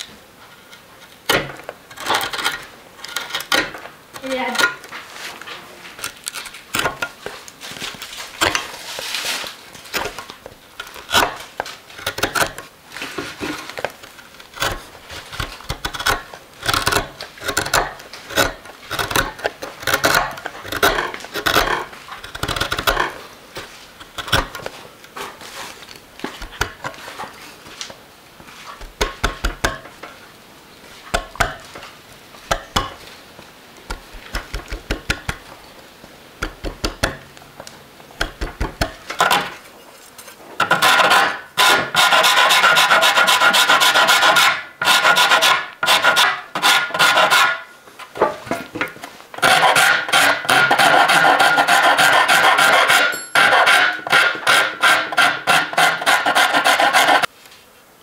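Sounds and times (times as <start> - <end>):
gouge cutting wood chips: 6.0 - 27.4, 33.8 - 35.5, 38.2 - 39.6, 40.6 - 47.7, 49.4 - 57.3
file rasping on wood: 10.8 - 11.4, 14.6 - 24.6, 40.6 - 47.7, 49.4 - 57.3.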